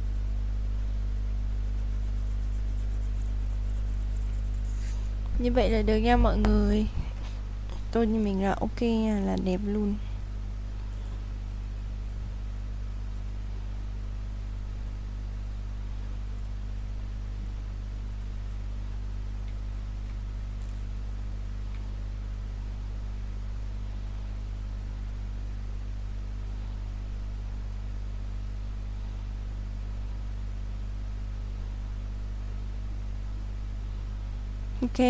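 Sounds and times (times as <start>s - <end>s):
low electrical hum: 0.0s - 35.0s
faint hiss: 0.8s - 8.8s.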